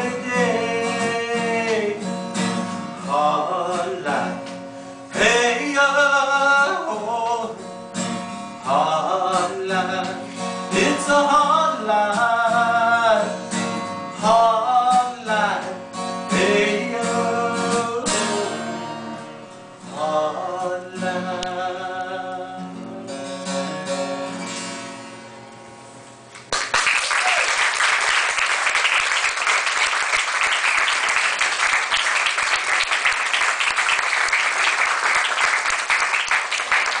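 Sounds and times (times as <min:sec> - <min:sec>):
guitar chords strummed: 0:00.0 - 0:26.0
audience applause: 0:26.4 - 0:37.0.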